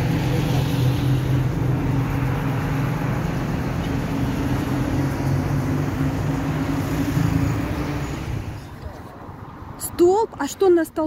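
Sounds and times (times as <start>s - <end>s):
street traffic engine hum: 0.0s - 11.0s.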